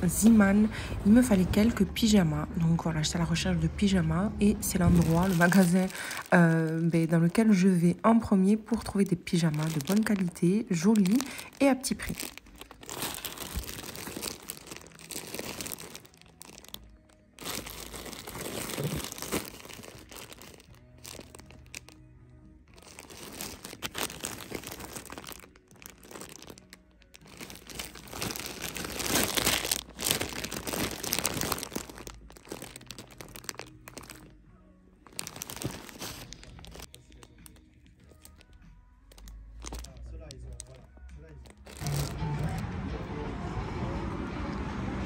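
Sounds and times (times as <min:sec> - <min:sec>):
soft background music: 0:00.0 - 0:45.0
packaging crinkling: 0:04.6 - 0:07.6, 0:08.6 - 0:22.0, 0:22.7 - 0:34.4, 0:35.0 - 0:42.6.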